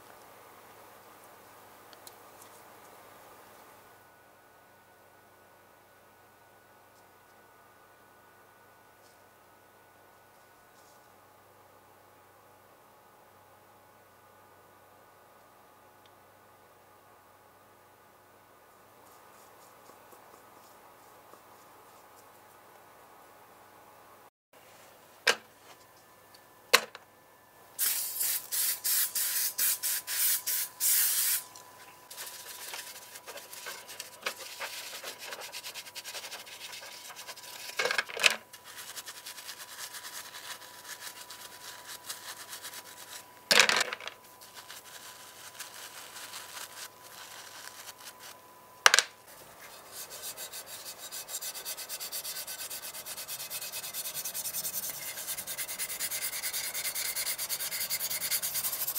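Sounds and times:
brush scrubbing in soapy water: 32.1 - 37.7, 38.6 - 43.2, 49.6 - 58.9
pad rubbing metal: 49.6 - 58.9.

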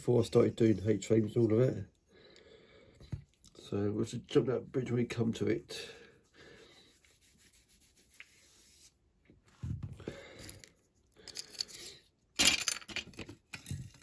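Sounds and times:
toy car parts being handled: 10.4 - 14.0.

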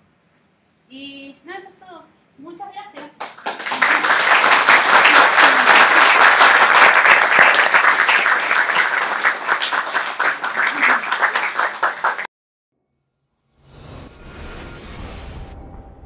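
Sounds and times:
audience applauding: 3.2 - 12.3.

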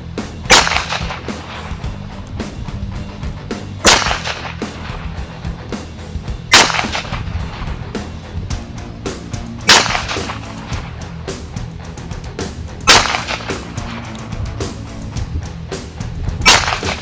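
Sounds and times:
pistol shots with echo: 0.5 - 1.8, 3.8 - 5.0, 6.5 - 7.3, 9.6 - 10.8, 12.8 - 14.1, 16.4 - 17.0.

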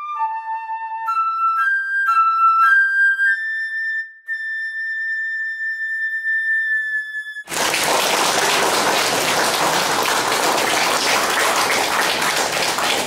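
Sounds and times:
audience applause: 7.5 - 13.0.

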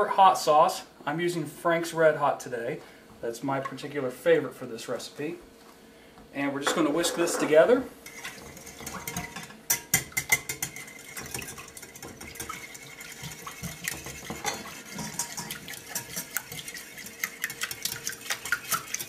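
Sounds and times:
whisk clicking against glass bowl: 8.6 - 19.0.

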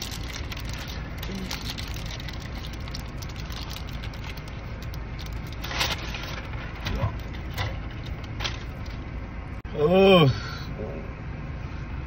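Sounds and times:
biting and chewing: 0.0 - 9.0
paper wrapper crinkling: 0.0 - 9.0
steady low hum: 0.0 - 12.0.

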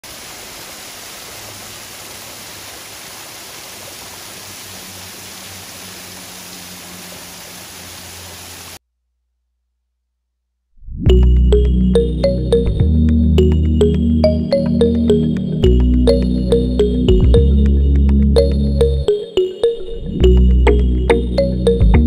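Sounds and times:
small waterfall splashing on rock: 0.0 - 8.8.

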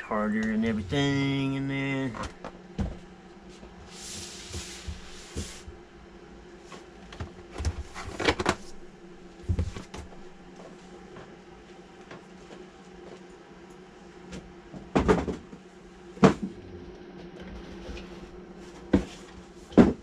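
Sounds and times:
steady low hum: 0.0 - 20.0
cardboard sliding and rubbing: 3.8 - 5.7.

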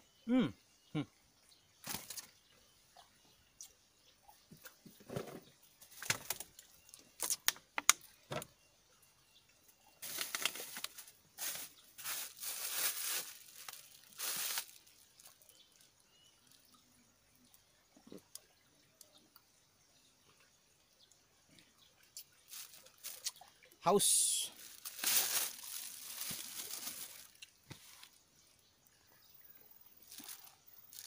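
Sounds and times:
clicks and crackles: 7.2 - 8.1
rustling and crinkling: 10.0 - 15.8, 22.4 - 23.4, 24.5 - 28.2, 30.0 - 31.0.

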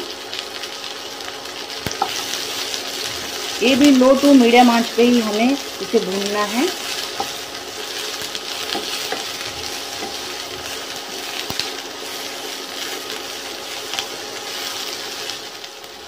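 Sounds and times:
onions sizzling in hot oil: 0.0 - 16.0
wooden spatula scraping a pan: 6.4 - 13.1.

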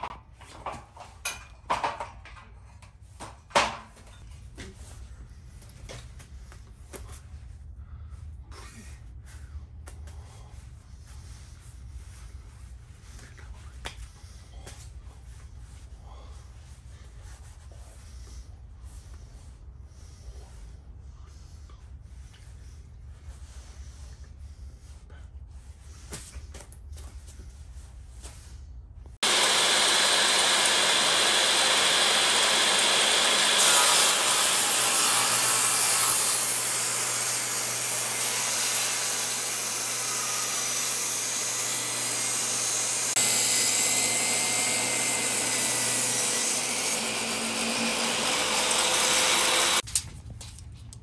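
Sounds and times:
table saw cutting wood: 29.2 - 49.8.

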